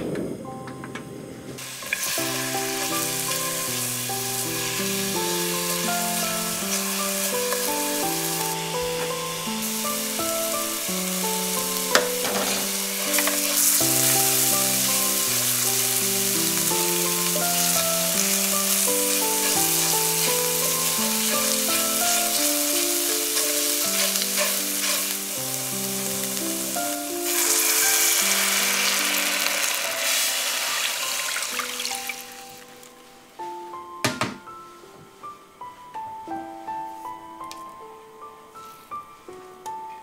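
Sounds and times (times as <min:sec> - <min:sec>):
background music: 0:00.0 - 0:40.0
water poured into hot pan: 0:01.6 - 0:08.6, 0:23.2 - 0:32.7
food sizzling in a pan: 0:01.6 - 0:32.9
spatula stirring: 0:18.6 - 0:25.5.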